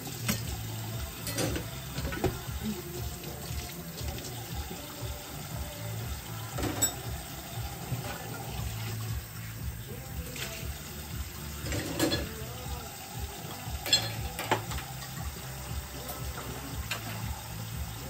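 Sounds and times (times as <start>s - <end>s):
tap running into steel sink: 1.3s - 2.5s, 6.5s - 7.2s, 13.8s - 15.4s, 16.0s - 17.4s.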